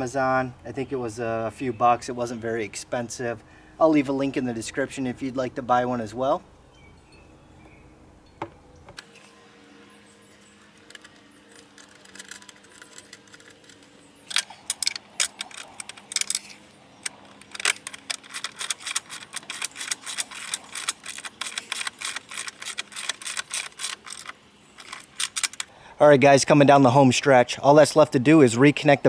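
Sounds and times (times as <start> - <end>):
ratchet wrench clicking: 10.8 - 25.7.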